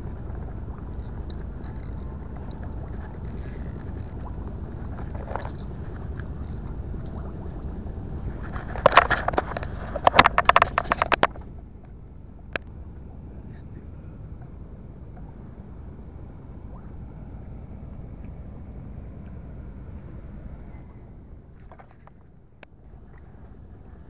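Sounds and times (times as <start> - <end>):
low rumble: 0.0 - 24.0
sharp clicks and rattles: 8.2 - 12.7.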